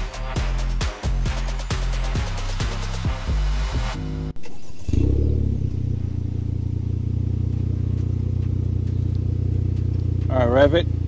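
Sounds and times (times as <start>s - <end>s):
car engine idling: 4.0s - 11.0s.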